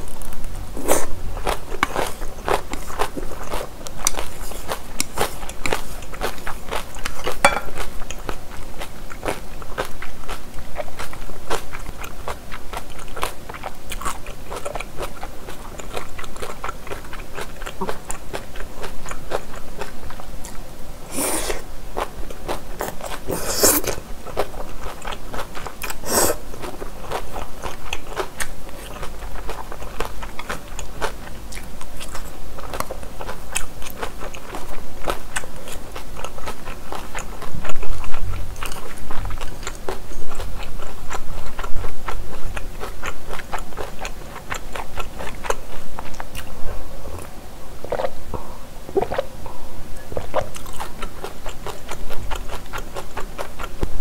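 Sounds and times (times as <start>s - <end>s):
close chewing of noodles: 0.0s - 54.0s
slurping noodles: 21.1s - 21.7s, 22.8s - 24.0s, 25.9s - 26.6s.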